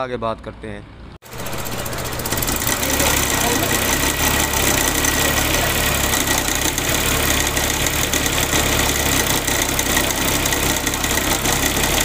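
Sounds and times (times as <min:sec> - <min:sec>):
engine idling: 0:01.2 - 0:12.0
high-pitched vibrating whine: 0:01.2 - 0:12.0.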